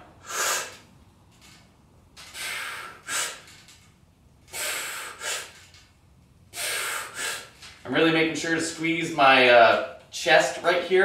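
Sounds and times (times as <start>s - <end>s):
man breathing forcefully: 0.0s - 0.9s, 2.2s - 3.7s, 4.5s - 5.8s, 6.5s - 7.8s.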